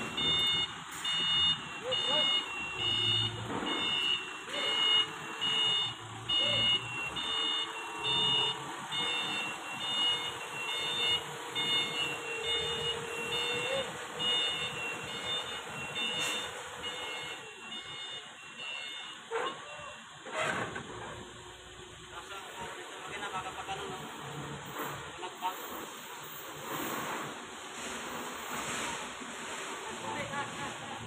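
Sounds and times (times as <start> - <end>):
forklift engine running: 0.0 - 19.0
forklift reversing alarm beeping: 0.0 - 20.2.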